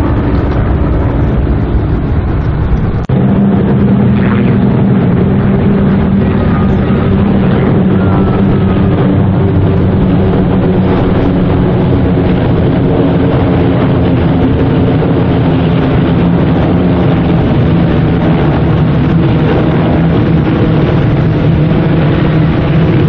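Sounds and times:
light aircraft engines droning: 0.0s - 23.0s.

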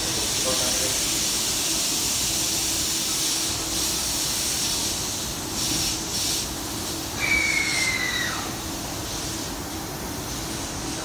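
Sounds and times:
train hiss: 0.0s - 11.0s
high whistling tone: 7.2s - 8.5s.

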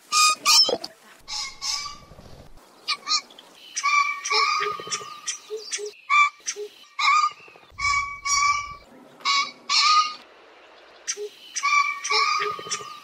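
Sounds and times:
pheasant rasping calls: 1.3s - 3.2s, 3.8s - 10.2s.

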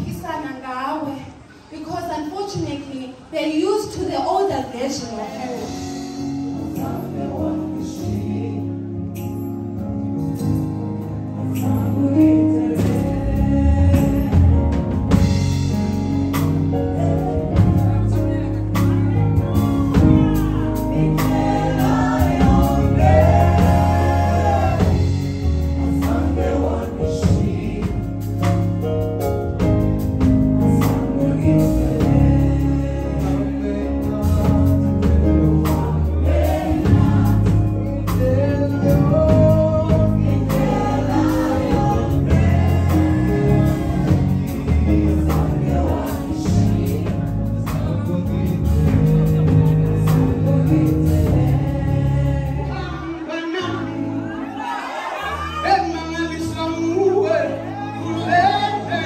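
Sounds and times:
band with bass and beat: 5.4s - 59.0s
voices singing together: 6.5s - 9.3s, 11.5s - 15.4s, 16.4s - 28.9s, 30.7s - 59.0s.

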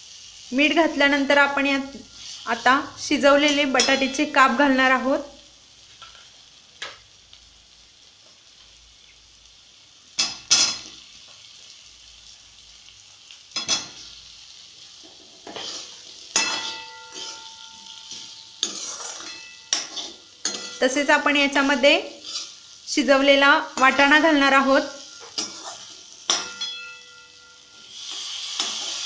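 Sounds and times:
faint sizzle: 0.0s - 29.0s
ladle scraping metal pan: 15.4s - 17.5s, 18.1s - 20.8s
pan ringing: 16.4s - 18.6s, 26.3s - 27.9s.

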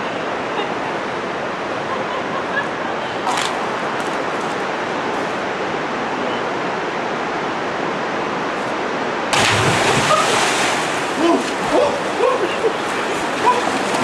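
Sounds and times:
river water rushing: 0.0s - 14.0s
person splashing into water: 9.3s - 12.0s.

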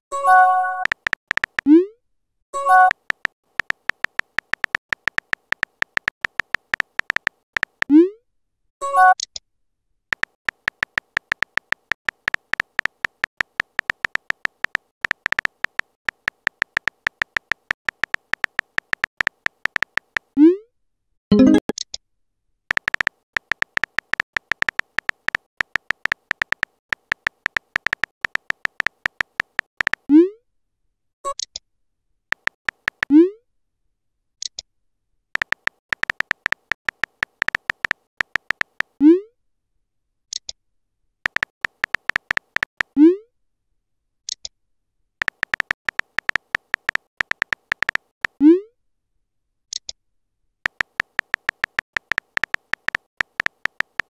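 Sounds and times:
keyboard tap clicks: 0.8s - 1.7s, 2.8s - 7.9s, 10.1s - 20.3s, 22.7s - 30.0s, 32.3s - 33.1s, 35.4s - 38.9s, 41.3s - 42.9s, 45.2s - 48.4s, 50.7s - 54.0s.

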